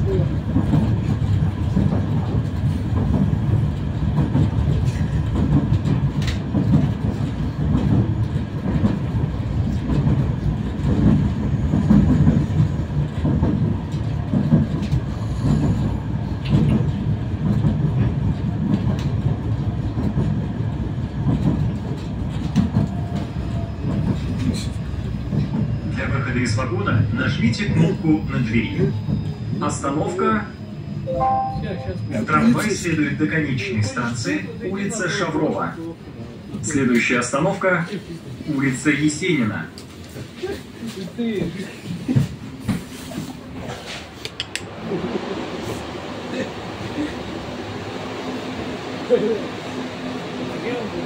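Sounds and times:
tram wheels rumbling on rails: 0.0 - 51.0.

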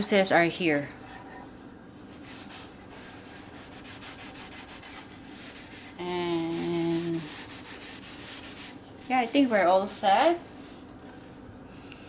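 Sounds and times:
cloth rubbing on wooden board: 1.0 - 9.7.

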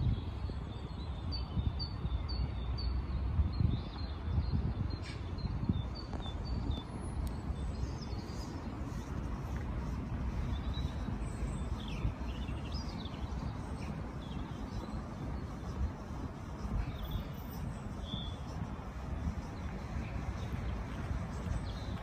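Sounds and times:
small birds chirping: 0.0 - 22.0
steady low rumble: 5.6 - 22.0.

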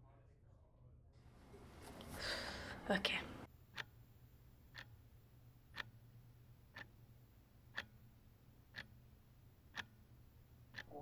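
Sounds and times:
low steady hum: 0.0 - 11.0
faint regular ticking: 3.4 - 11.0.

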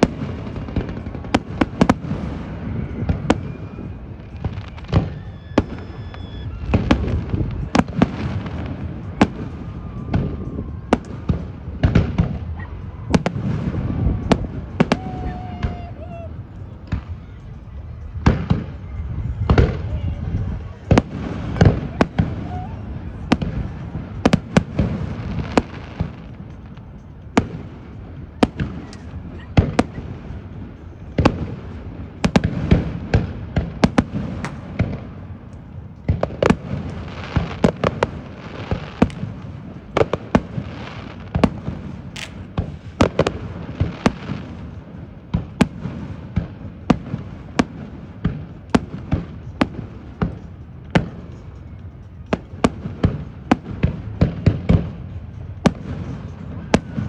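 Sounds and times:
firework shells bursting: 41.4 - 43.4.

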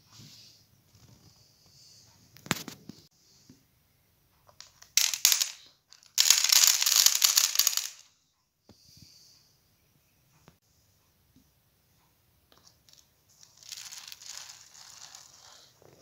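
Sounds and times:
corn kernels rattling: 4.8 - 8.0, 12.9 - 15.7
plastic scraping across kernels: 13.4 - 16.0.

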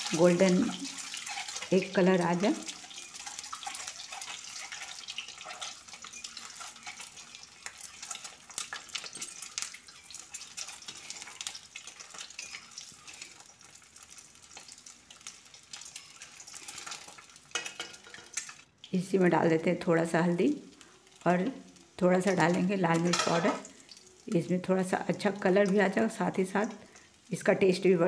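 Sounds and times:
eggs sizzling in oil: 0.0 - 28.0
metal spatula scraping a pan: 0.1 - 18.6.

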